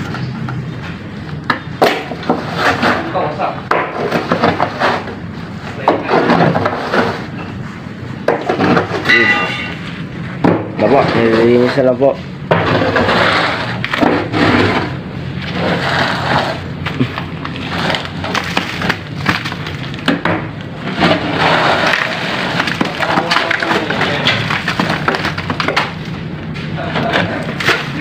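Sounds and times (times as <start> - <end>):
wooden plank scraping concrete: 1.8 - 5.2, 5.8 - 7.4, 10.8 - 19.6, 20.2 - 26.0
cracks of wood and rubble: 16.8 - 28.0.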